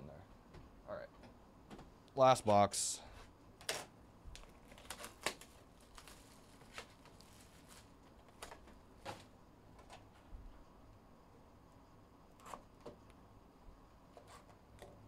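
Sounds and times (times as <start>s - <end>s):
plastic wrapping rustling: 4.4s - 9.3s.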